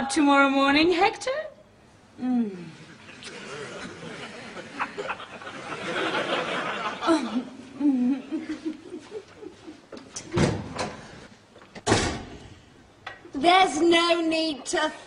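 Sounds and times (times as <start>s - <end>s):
studio audience laughter: 3.0s - 7.6s, 8.2s - 10.0s.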